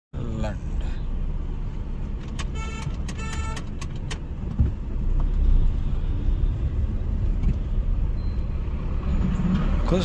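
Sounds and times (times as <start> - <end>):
traffic rumble: 0.2 - 10.0
vehicle horn beeps: 2.6 - 3.7.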